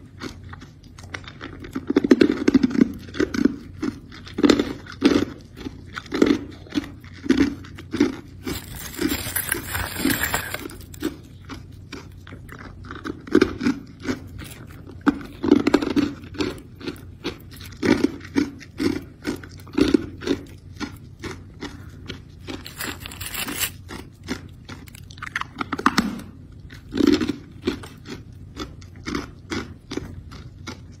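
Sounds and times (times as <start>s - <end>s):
ice being chewed: 0.0s - 31.0s
plastic bag rustling: 8.4s - 11.1s, 22.6s - 23.8s.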